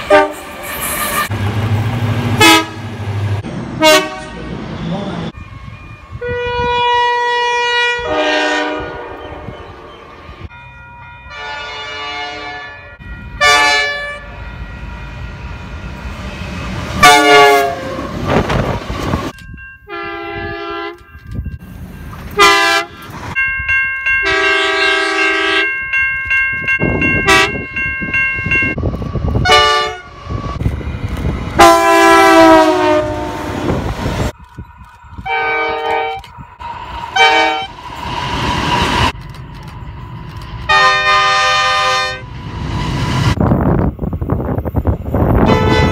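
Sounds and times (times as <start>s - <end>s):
train horn blasts: 0.0s - 1.4s, 2.4s - 2.9s, 3.8s - 4.6s, 5.5s - 9.7s, 11.3s - 14.3s, 17.0s - 18.1s, 19.9s - 21.1s, 22.4s - 23.0s, 24.2s - 25.7s, 27.2s - 27.8s, 29.4s - 30.1s, 31.6s - 33.8s, 35.3s - 36.2s, 37.1s - 37.7s, 40.7s - 42.3s, 45.4s - 45.9s
rumble of passing trains: 0.0s - 45.9s.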